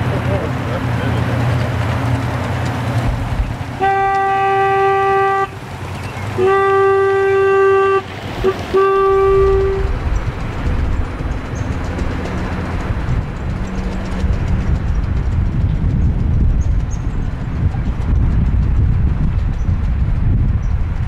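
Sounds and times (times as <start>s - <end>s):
low rumble: 0.0s - 21.0s
locomotive horn blasts: 3.8s - 10.1s.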